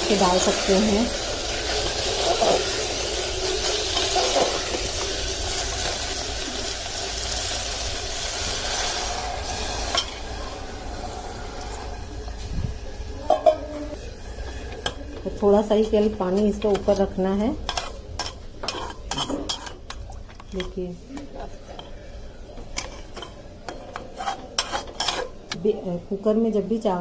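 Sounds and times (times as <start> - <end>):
rice sizzling in hot oil: 0.0 - 25.6
metal spoon stirring in pot: 0.2 - 6.0, 13.3 - 25.6
spoon clinking against pot: 17.7 - 20.0.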